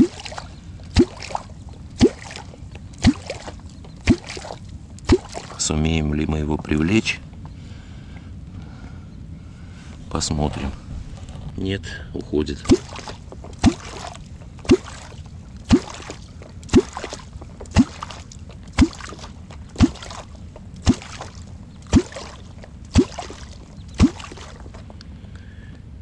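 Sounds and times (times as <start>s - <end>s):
catfish call water gulps: 0.0s - 5.7s, 12.6s - 24.8s.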